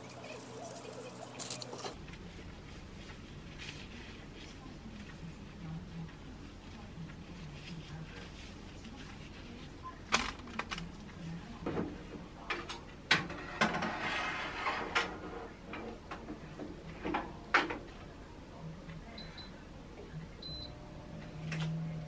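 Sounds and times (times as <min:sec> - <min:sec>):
metal mesh basket scraping: 0:13.3 - 0:15.6.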